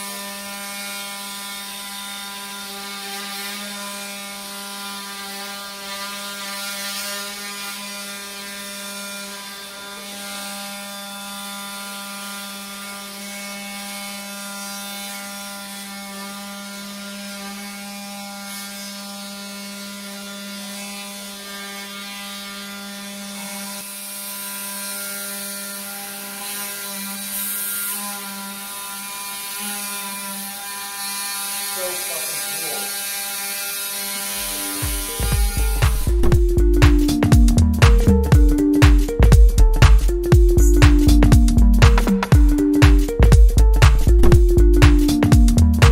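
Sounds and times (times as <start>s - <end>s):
bone saw buzzing: 0.0s - 45.9s.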